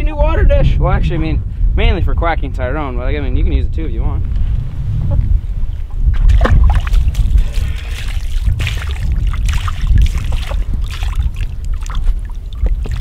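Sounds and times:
wind rumble on microphone: 0.0s - 13.0s
duck splashing in water: 6.3s - 13.0s.

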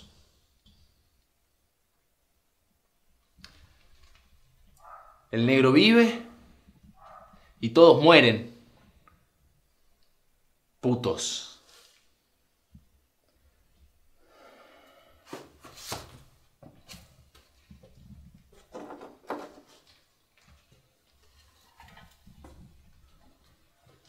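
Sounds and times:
soft breathing: 13.3s - 15.7s
objects knocking and scraping: 15.3s - 24.0s.

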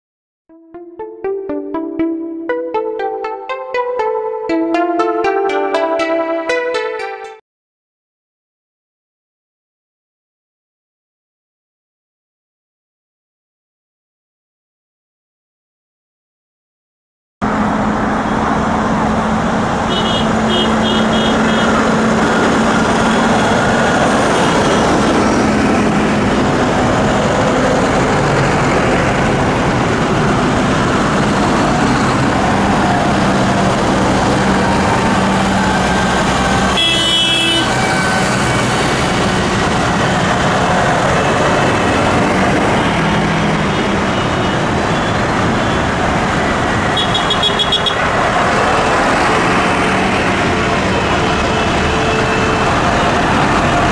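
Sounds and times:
tractor diesel engines: 17.4s - 53.9s
short high-pitched horn blast: 36.8s - 38.6s.

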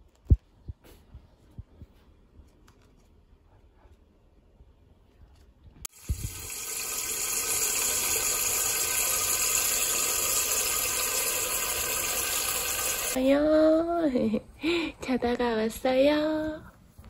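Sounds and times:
tap water running into metal pot: 5.9s - 13.2s.

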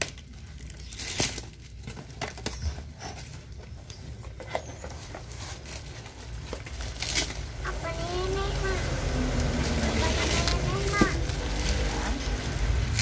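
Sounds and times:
packing tape tearing: 0.0s - 8.7s, 9.3s - 13.0s
cardboard flaps rustling and scraping: 0.9s - 8.4s.

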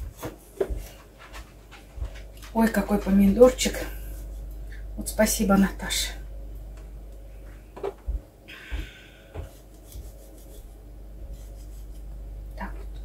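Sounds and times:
knife scraping: 9.5s - 12.1s.

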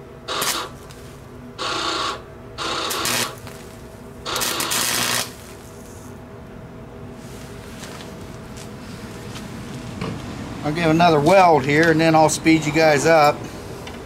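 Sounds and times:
welder arc crackling: 0.3s - 5.7s.

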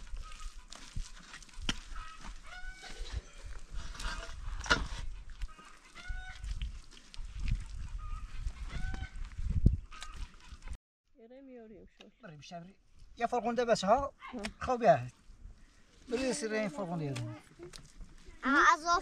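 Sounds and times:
poultry calling: 1.8s - 3.3s, 5.4s - 6.5s, 7.6s - 9.3s.

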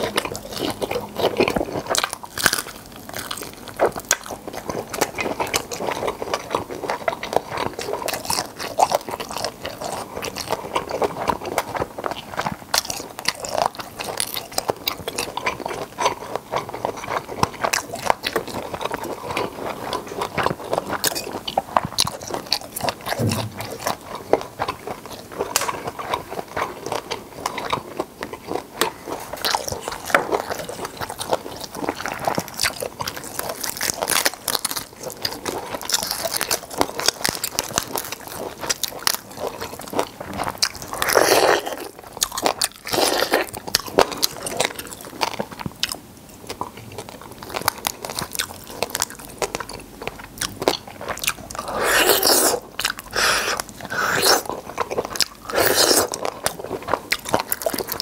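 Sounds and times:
wet chewing: 0.0s - 58.0s
biting into shrimp: 50.4s - 58.0s
shrimp shell crackling: 50.8s - 58.0s.

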